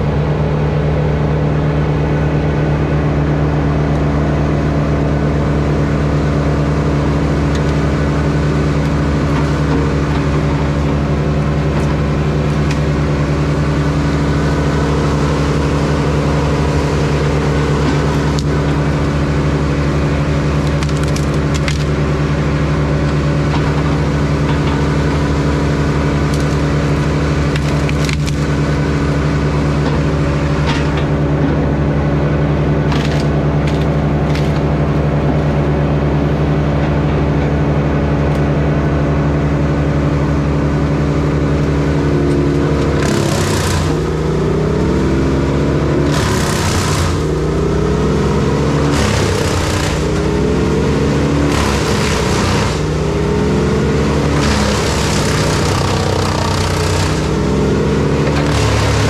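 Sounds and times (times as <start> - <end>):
wood chipper chewing wood: 3.6 - 59.0
wood cracking and splintering: 19.6 - 22.2, 23.1 - 28.8, 32.9 - 34.8, 48.4 - 52.9, 54.2 - 59.0.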